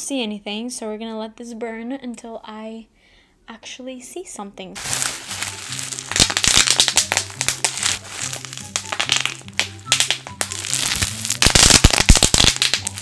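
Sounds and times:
background music: 0:04.8 - 0:13.0
bubble wrap popping: 0:04.8 - 0:13.0
plastic crinkling: 0:04.8 - 0:13.0.

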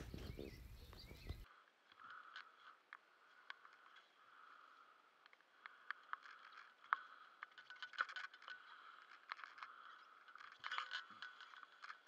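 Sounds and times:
diving gear clicks and scrapes: 0:05.2 - 0:12.0.

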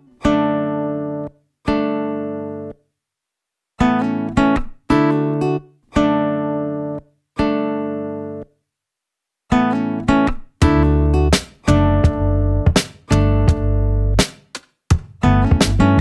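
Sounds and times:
plucked string chords: 0:09.5 - 0:14.3, 0:14.9 - 0:16.0.

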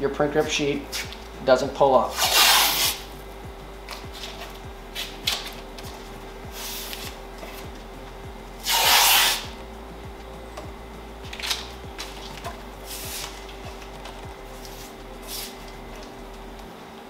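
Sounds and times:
tape ripping off roll: 0:02.1 - 0:03.0, 0:08.6 - 0:09.5
tape tearing and rubbing: 0:02.1 - 0:03.1, 0:03.9 - 0:07.7, 0:08.6 - 0:09.6, 0:11.3 - 0:15.8.

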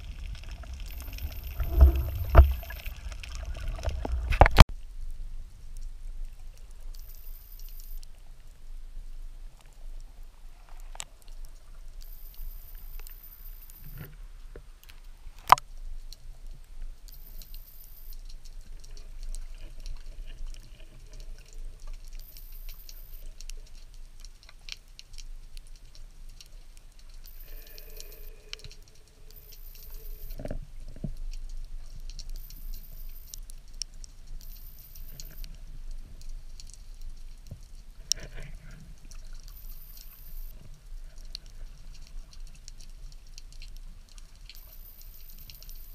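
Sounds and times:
low underwater rumble: 0:00.0 - 0:06.8
crackling clicks: 0:00.0 - 0:08.2, 0:09.6 - 0:45.9.

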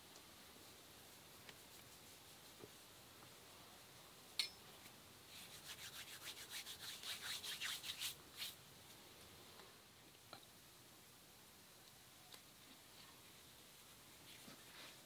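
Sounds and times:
hands rubbing together: 0:01.0 - 0:03.0, 0:05.3 - 0:08.6.

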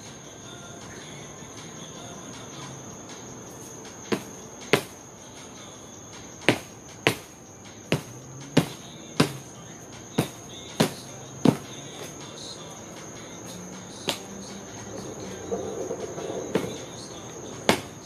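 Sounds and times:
crickets chirring: 0:00.0 - 0:18.0
knocks on wooden boards: 0:04.1 - 0:05.0, 0:06.5 - 0:07.3, 0:07.9 - 0:09.4, 0:10.2 - 0:11.7, 0:17.7 - 0:18.0.

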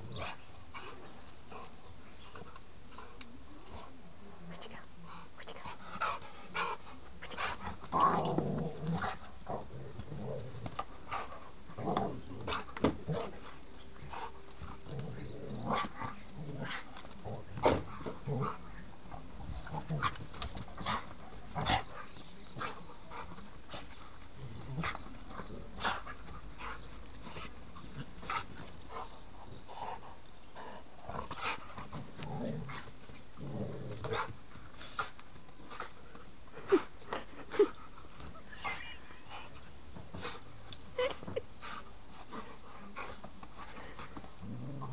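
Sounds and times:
dog growling: 0:07.4 - 0:13.5, 0:14.1 - 0:20.2, 0:30.6 - 0:34.4, 0:43.8 - 0:44.9.

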